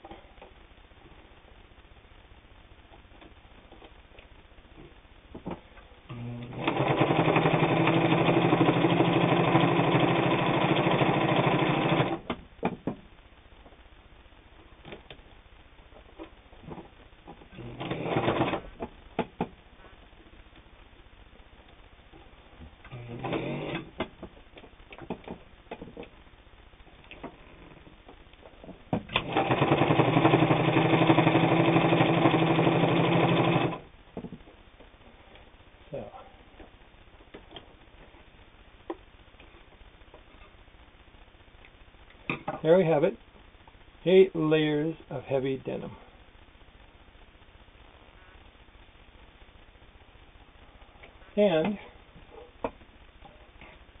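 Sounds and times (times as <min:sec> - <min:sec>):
sewing machine running: 0:06.1 - 0:12.3, 0:17.5 - 0:18.7, 0:22.9 - 0:23.9, 0:29.1 - 0:33.9.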